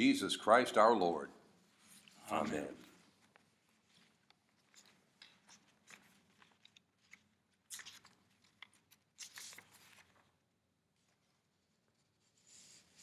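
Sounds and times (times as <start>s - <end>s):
paper rustling: 1.8s - 10.4s.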